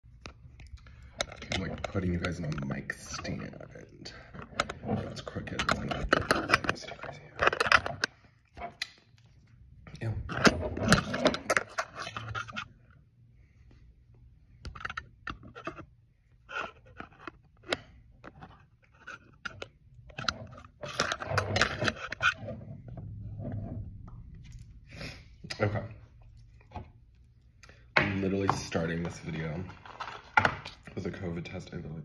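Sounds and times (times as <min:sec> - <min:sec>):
phone handling rubbing and knocking: 0:04.2 - 0:08.8, 0:14.6 - 0:24.0.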